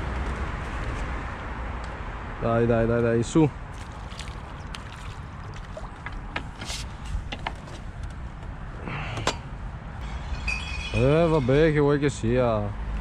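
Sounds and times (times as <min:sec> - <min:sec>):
water splashing and dripping: 0:03.7 - 0:06.6.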